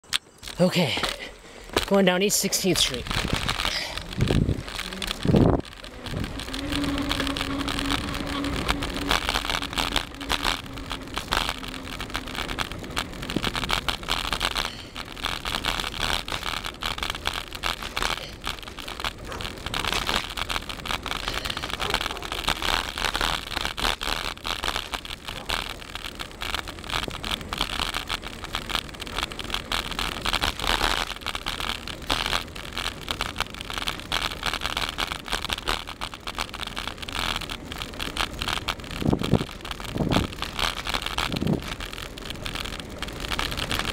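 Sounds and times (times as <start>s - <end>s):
tyre and road noise: 0.0s - 43.9s
wind rushing over microphone: 2.9s - 16.8s, 38.3s - 43.9s.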